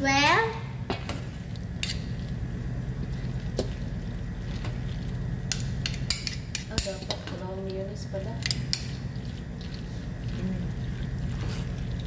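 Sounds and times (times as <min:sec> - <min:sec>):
wet squishing of salad: 0:01.4 - 0:06.7, 0:08.4 - 0:12.0
utensils clinking on metal bowl: 0:04.5 - 0:11.4.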